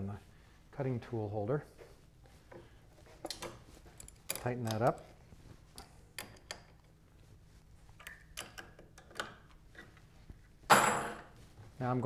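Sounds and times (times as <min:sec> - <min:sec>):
faint clicks and metal taps: 0:02.5 - 0:07.0, 0:08.0 - 0:10.1.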